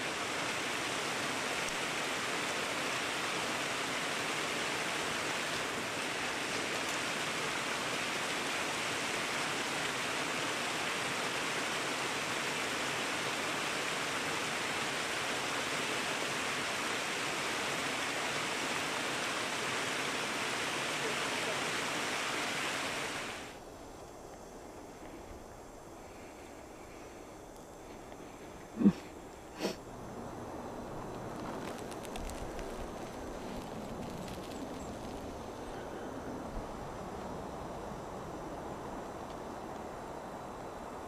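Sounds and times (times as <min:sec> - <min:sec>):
creek splashing over rocks: 0:00.0 - 0:23.6.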